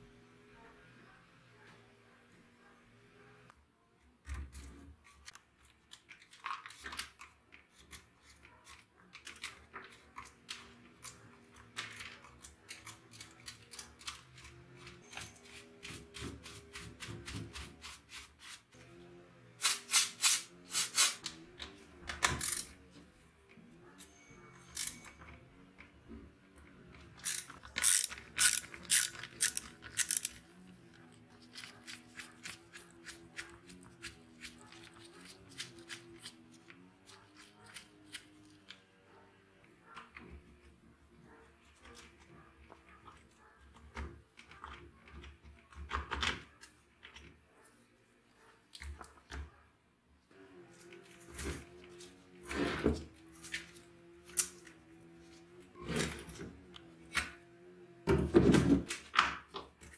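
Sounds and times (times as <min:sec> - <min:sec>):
tools tapping and scraping: 0:24.0 - 0:26.2.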